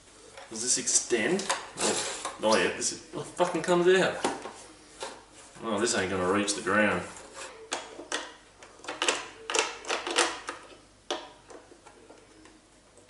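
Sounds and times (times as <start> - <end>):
plastic parts clicking: 7.7 - 13.0.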